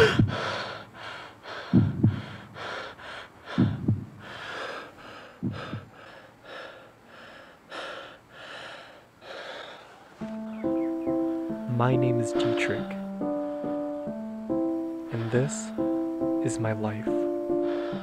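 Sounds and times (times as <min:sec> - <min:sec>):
dull low thumps: 0:00.0 - 0:00.5, 0:01.6 - 0:02.6, 0:03.5 - 0:04.3, 0:05.4 - 0:06.0
man breathing hard: 0:00.0 - 0:10.2, 0:13.3 - 0:14.0, 0:17.5 - 0:18.0.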